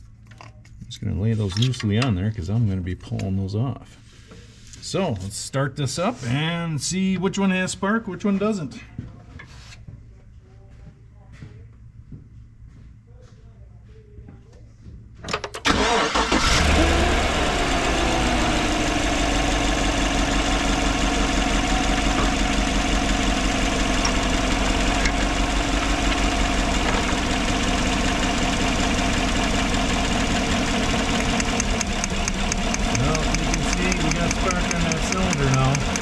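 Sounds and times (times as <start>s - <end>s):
misfiring engine idling: 15.7s - 36.0s
starter cranking: 30.2s - 36.0s.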